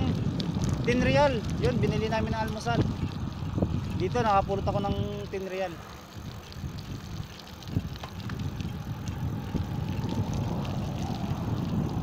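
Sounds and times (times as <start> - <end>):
light clicks and rattles: 0.0 - 3.1
bicycle tyre road noise: 0.0 - 12.0
wind rumbling on microphone: 0.0 - 12.0.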